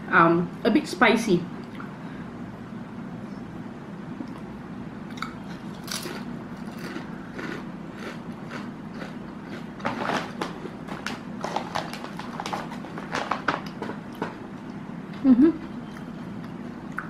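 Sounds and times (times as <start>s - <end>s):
person crunching potato chips: 5.1s - 14.2s.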